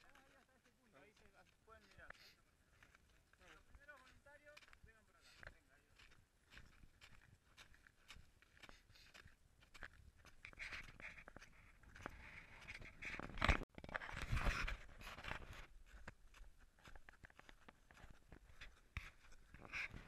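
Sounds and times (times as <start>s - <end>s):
clothing rubbing against camera: 10.4s - 16.0s, 18.0s - 20.0s.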